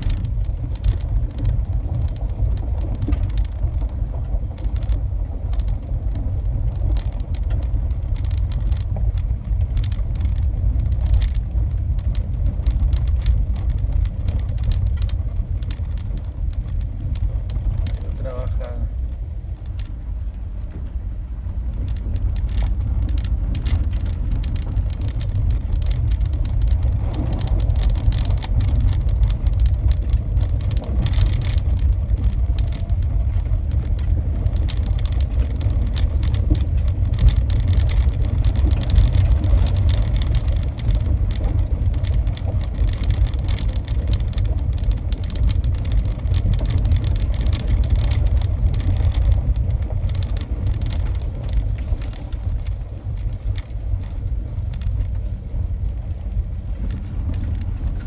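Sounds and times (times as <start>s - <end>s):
small clicks and knocks: 0.0s - 18.8s, 21.7s - 58.0s
car engine and road rumble: 0.0s - 58.0s.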